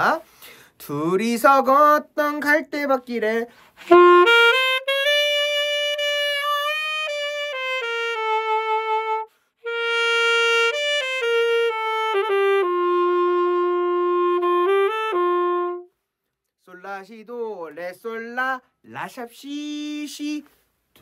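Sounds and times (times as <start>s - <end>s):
alto saxophone melody: 3.5s - 16.0s.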